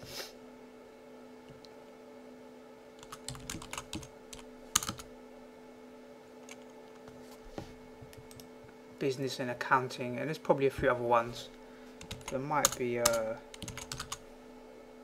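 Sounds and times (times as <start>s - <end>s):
steady low hum: 0.0s - 15.0s
computer keyboard typing: 3.0s - 5.1s, 12.0s - 14.2s.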